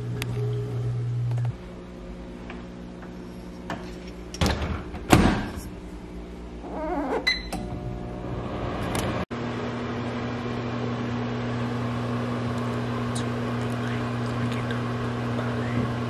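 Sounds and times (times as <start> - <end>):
microwave oven humming: 0.0 - 16.0
microwave door clunks: 4.4 - 5.6.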